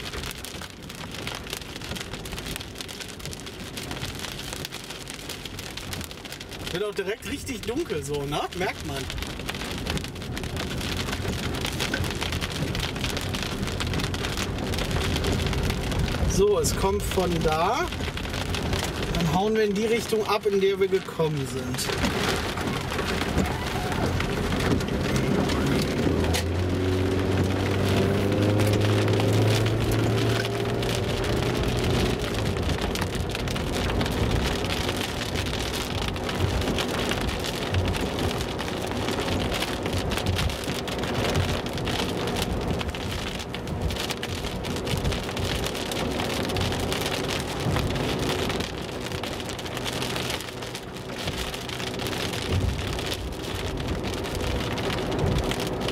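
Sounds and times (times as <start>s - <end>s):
rain drumming on car roof: 0.0s - 55.9s
wet tyres hissing: 7.6s - 55.9s
car engine accelerating: 21.7s - 55.9s.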